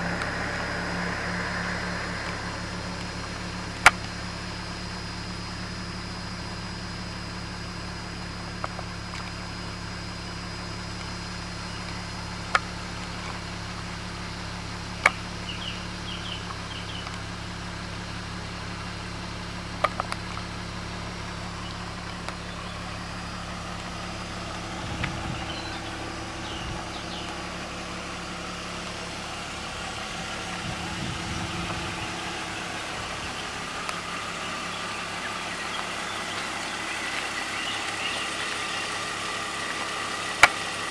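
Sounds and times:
car engine idling: 0.0 - 40.9.

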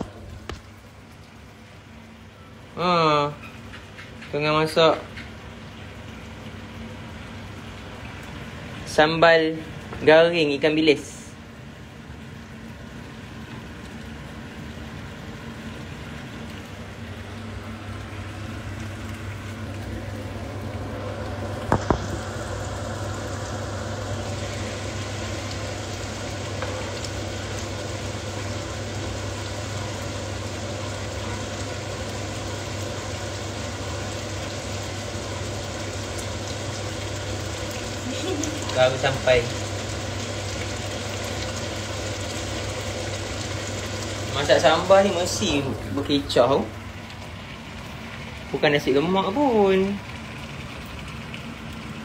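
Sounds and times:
steady low hum: 0.0 - 52.0
sauce sizzling in a frying pan: 16.8 - 52.0.

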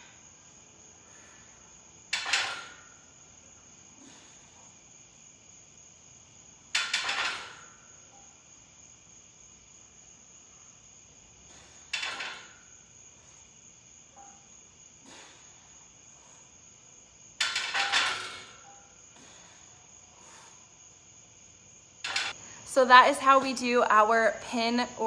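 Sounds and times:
barbell clanking on steel pins: 2.1 - 3.0, 6.7 - 7.8, 11.9 - 12.7, 17.4 - 18.8, 22.0 - 22.4.

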